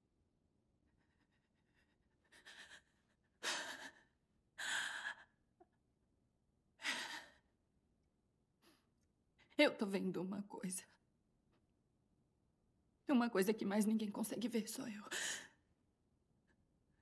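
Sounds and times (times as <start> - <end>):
woman breathing hard: 2.3 - 5.4.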